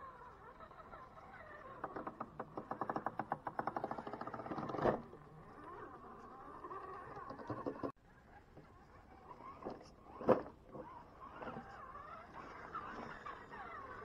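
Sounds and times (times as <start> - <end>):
fast run of clicks: 1.8 - 7.9.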